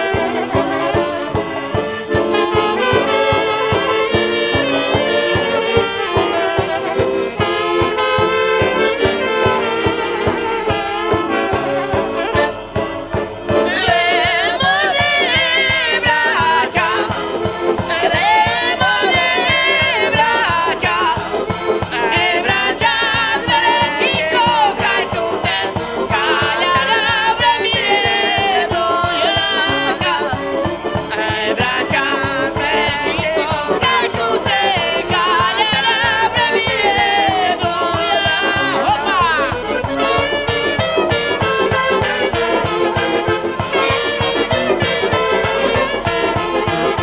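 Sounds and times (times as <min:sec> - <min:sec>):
accordion: 0:00.0 - 0:47.0
drum beat: 0:00.0 - 0:47.0
guitar: 0:00.0 - 0:47.0
saxophones playing melody: 0:00.0 - 0:47.0
person singing: 0:13.5 - 0:40.2.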